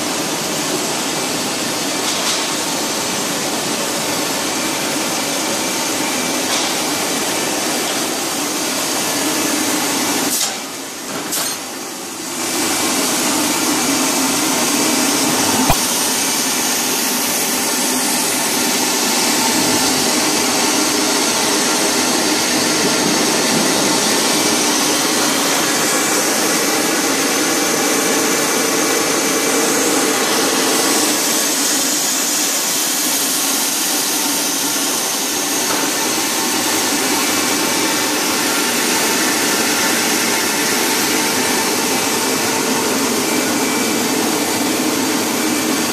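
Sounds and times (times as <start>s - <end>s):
steady machinery noise: 0.0s - 45.9s.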